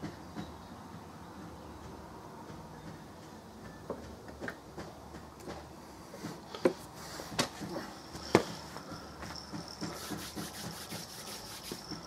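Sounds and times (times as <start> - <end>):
insects chirring: 7.7 - 12.0.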